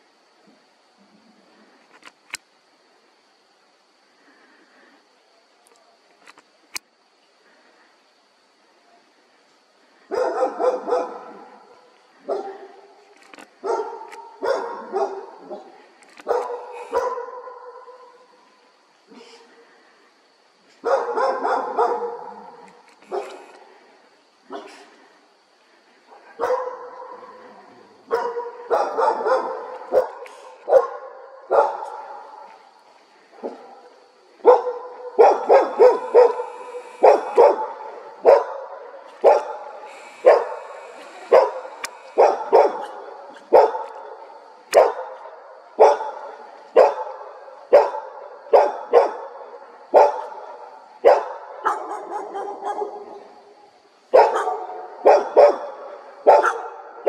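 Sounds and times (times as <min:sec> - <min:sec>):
dog barking: 0:10.1 - 0:12.9, 0:13.6 - 0:18.2, 0:20.8 - 0:23.5, 0:24.5 - 0:24.8, 0:26.3 - 0:27.5, 0:28.1 - 0:32.4, 0:33.4 - 0:53.3, 0:54.1 - 0:57.0.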